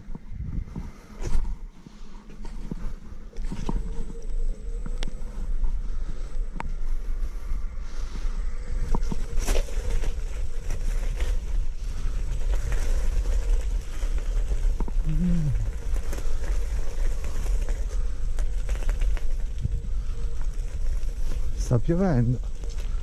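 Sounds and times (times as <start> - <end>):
wind buffeting microphone: 0.0 - 1.3
person humming: 15.0 - 15.8.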